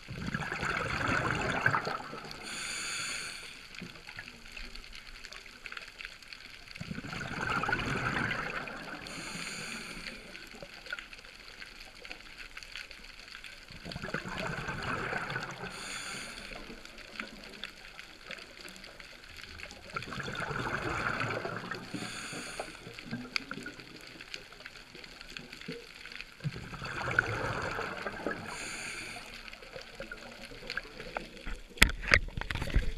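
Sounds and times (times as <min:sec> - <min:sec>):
scuba regulator breathing underwater: 0:01.0 - 0:03.9, 0:07.6 - 0:10.4, 0:14.8 - 0:16.9, 0:20.4 - 0:23.2, 0:26.8 - 0:29.8.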